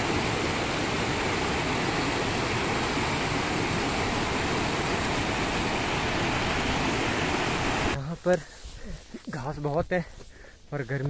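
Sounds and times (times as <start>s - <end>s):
mountain stream rushing: 0.0s - 8.0s.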